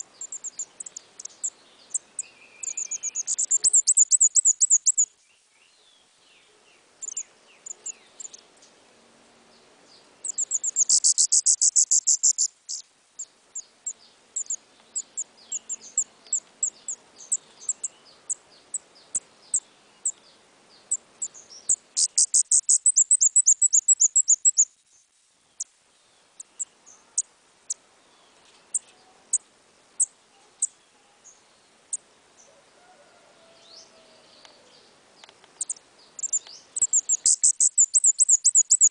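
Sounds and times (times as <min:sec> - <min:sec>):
songbird trilling: 0:00.0 - 0:05.1, 0:07.0 - 0:08.4, 0:10.2 - 0:12.8, 0:13.6 - 0:20.2, 0:20.9 - 0:24.7, 0:35.6 - 0:38.9
high bird chips: 0:10.3 - 0:12.8, 0:35.7 - 0:38.9.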